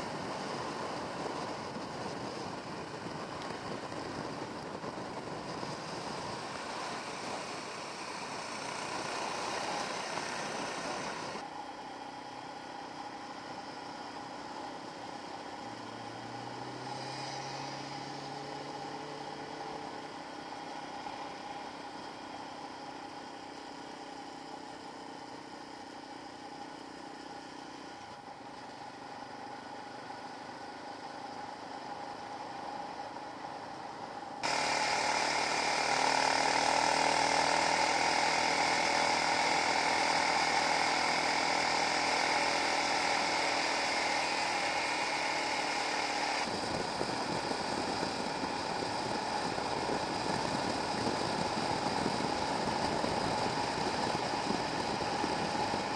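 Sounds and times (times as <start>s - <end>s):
motorcycle engine whining: 0.0s - 55.9s.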